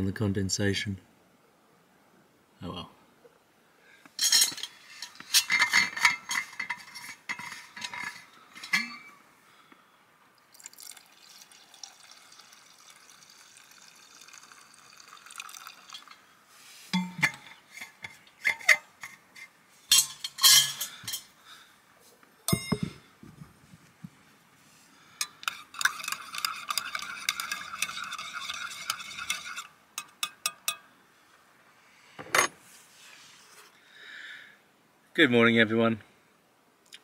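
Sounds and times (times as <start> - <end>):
water pouring into a mug: 10.4 - 16.2
flask and mug clinking: 10.6 - 16.2, 17.0 - 17.5, 22.5 - 23.0.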